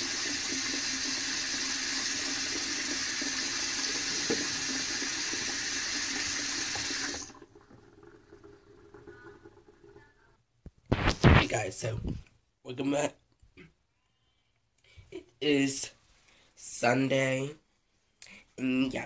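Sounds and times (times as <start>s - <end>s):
faucet running into sink: 0.0s - 10.2s.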